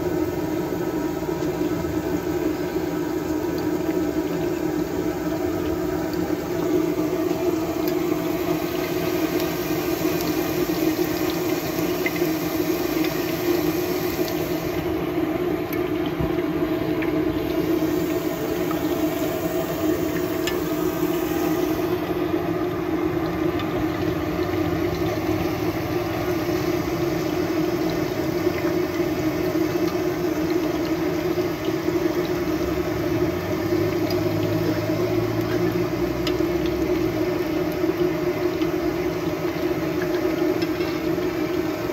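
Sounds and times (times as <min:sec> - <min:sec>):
hot oil sizzling and crackling: 0:00.0 - 0:41.9.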